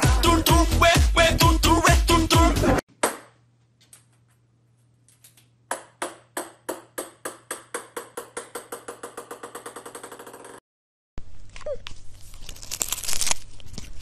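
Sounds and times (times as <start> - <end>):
music: 0.0 - 2.8
ping-pong ball bouncing on wood: 5.7 - 10.6.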